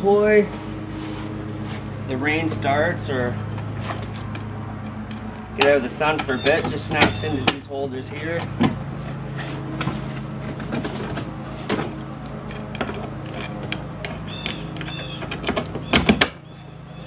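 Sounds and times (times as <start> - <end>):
metal poles clicking into holders: 2.4 - 8.8, 10.5 - 16.4.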